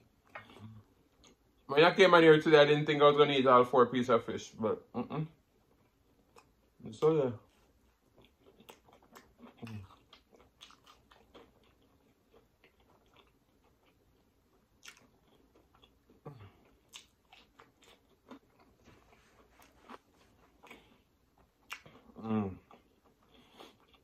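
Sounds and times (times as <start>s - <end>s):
chewing crispy fried fish: 7.5s - 24.0s.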